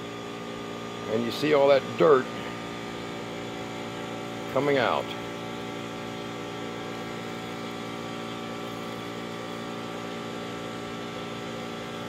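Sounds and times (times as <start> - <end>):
steady machine hum: 0.0 - 12.0.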